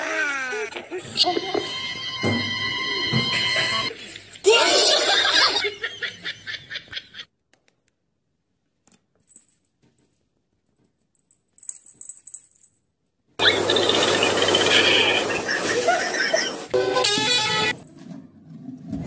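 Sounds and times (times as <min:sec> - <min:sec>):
cat collar bell jingling: 0:11.1 - 0:12.9.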